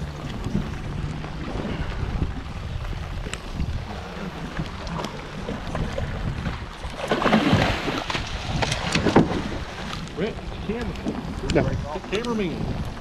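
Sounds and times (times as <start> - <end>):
sea against boat hull: 0.0 - 13.0
wind: 0.0 - 13.0
shark splashing at surface: 7.0 - 9.4.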